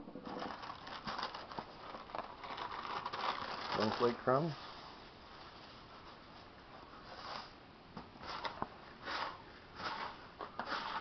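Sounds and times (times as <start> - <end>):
dry crumbs rustling: 0.3 - 4.8.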